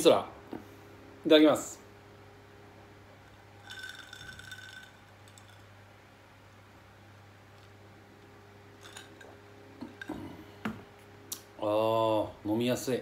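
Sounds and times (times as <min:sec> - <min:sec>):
faint steady hum: 0:00.0 - 0:13.0
ice cubes clinking in glass: 0:03.6 - 0:05.8, 0:08.8 - 0:09.3.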